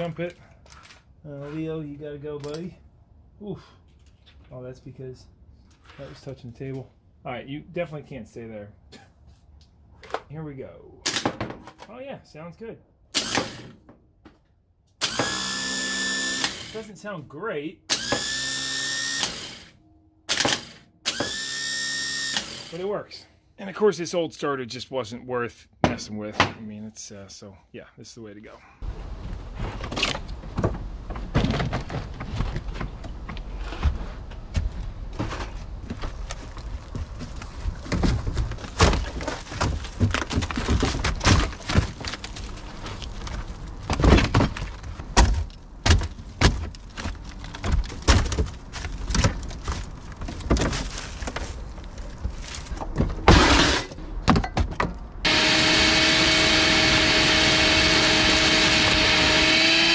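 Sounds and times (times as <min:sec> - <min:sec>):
shop vacuum whining: 0:15.0 - 0:16.8, 0:17.9 - 0:22.8, 0:55.2 - 0:59.9
knocks and clatter of debris: 0:29.2 - 0:55.0.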